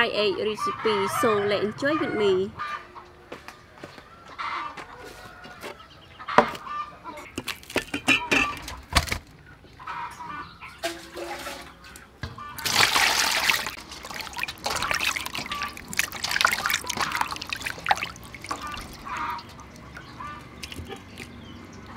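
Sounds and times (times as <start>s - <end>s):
water pouring into metal basin: 10.8s - 11.8s, 12.6s - 20.8s
splashing while rinsing meat: 12.5s - 21.9s.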